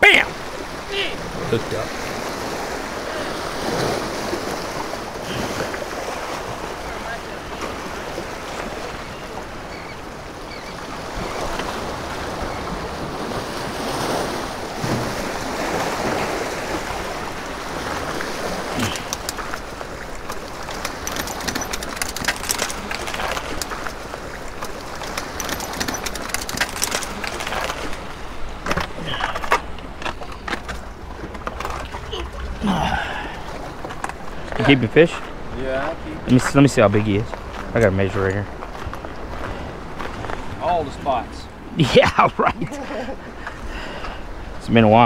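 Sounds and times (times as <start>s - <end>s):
waves splashing over rocks: 0.0s - 45.0s
sharp clicks and knocks: 18.8s - 19.7s, 20.3s - 24.0s, 24.6s - 27.8s.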